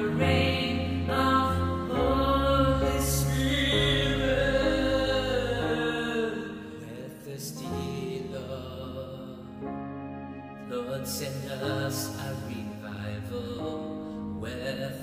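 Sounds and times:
low bass line: 0.0s - 6.6s
slow worship music: 0.0s - 15.0s.

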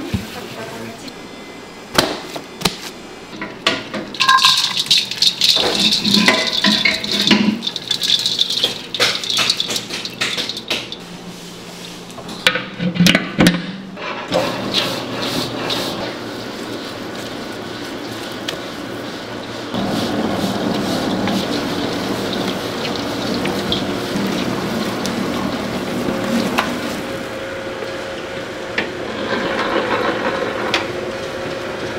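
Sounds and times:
kitchen utensils rattling and knocking: 4.1s - 11.0s.

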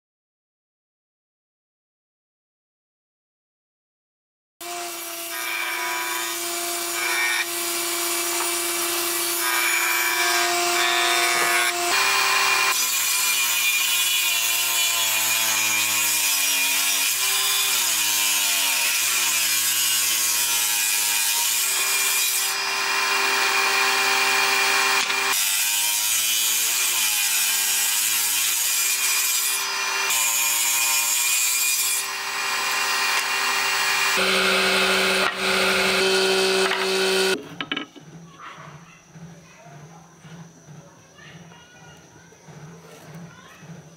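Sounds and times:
table saw ripping wood: 4.6s - 37.8s.

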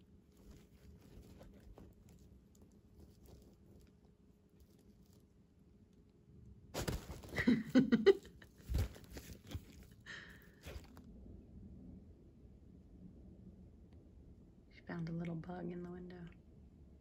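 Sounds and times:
fabric tunnel rustling and crinkling: 0.0s - 6.0s, 6.6s - 11.1s.

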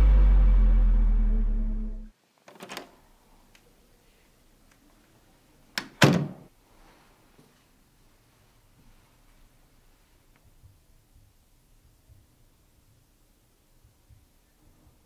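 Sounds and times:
low music note: 0.0s - 2.1s
door shutting thunk: 6.0s - 6.4s.

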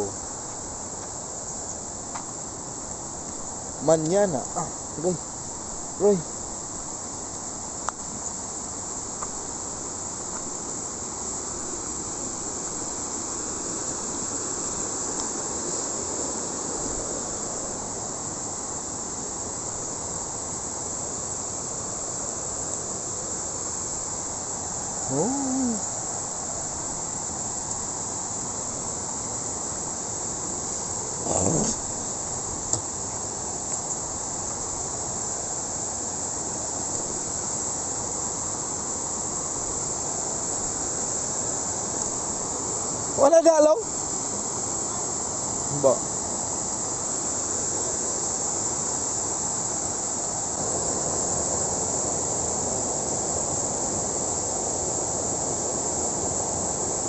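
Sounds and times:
high-pitched insect chorus: 0.0s - 57.0s
short calls: 25.0s - 26.0s, 31.2s - 31.9s.

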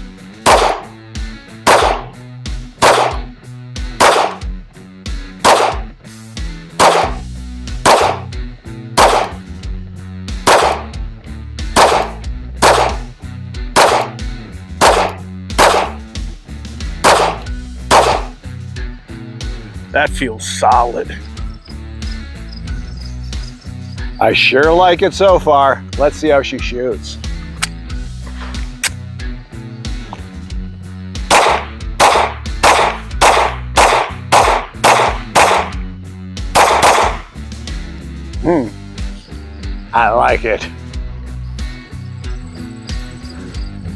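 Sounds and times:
background music: 0.0s - 43.9s
pistol shots: 0.4s - 1.0s, 1.6s - 2.2s, 2.8s - 3.3s, 4.0s - 4.5s, 5.4s - 5.9s, 6.8s - 7.2s, 7.8s - 8.3s, 9.0s - 9.4s, 10.4s - 11.0s, 11.8s - 13.1s, 13.8s - 14.2s, 14.8s - 16.0s, 17.0s - 18.4s, 31.3s - 35.8s, 36.5s - 37.3s.

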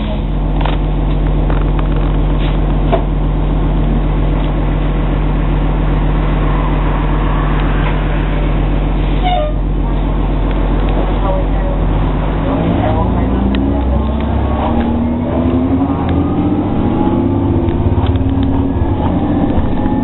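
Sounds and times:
bus engine humming: 0.0s - 20.0s
short high squeaks: 9.1s - 9.7s.

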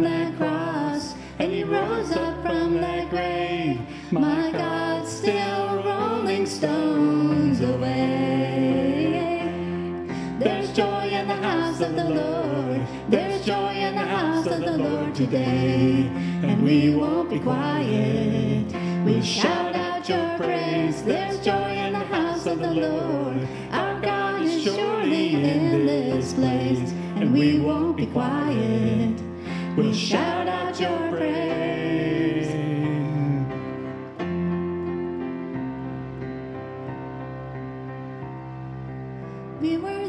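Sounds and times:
woman singing: 0.0s - 2.9s, 4.1s - 9.6s, 10.3s - 32.7s, 39.6s - 40.0s
electronic keyboard: 0.0s - 40.0s
man singing: 10.4s - 33.6s.

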